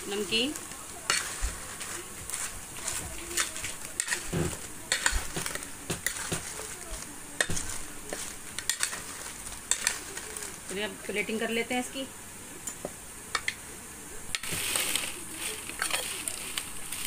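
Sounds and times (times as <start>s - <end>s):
metal spoon scraping a plate: 1.1s - 6.4s.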